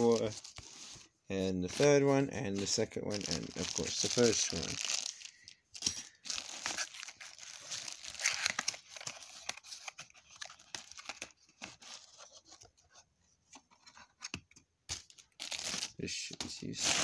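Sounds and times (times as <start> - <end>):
packaging crinkling and rustling: 1.7 - 12.4.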